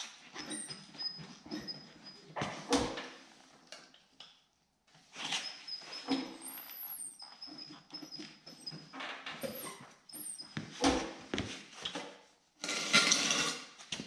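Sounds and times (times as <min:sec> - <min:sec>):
tyre rubber creaking and squeaking: 0:00.4 - 0:02.4, 0:05.2 - 0:11.2.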